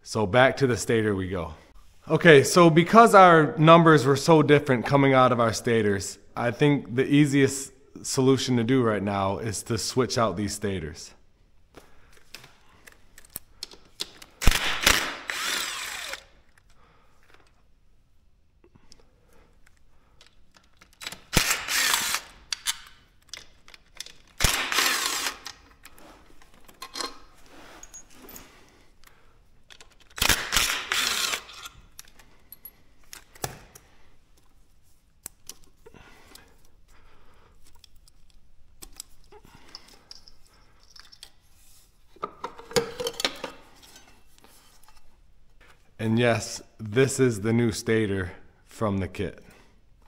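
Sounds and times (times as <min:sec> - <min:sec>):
power drill running: 0:14.8 - 0:16.3, 0:21.4 - 0:22.3, 0:24.4 - 0:25.5, 0:30.6 - 0:31.7
metal clinks and handling noises: 0:25.6 - 0:28.9, 0:32.0 - 0:33.4, 0:37.6 - 0:41.6.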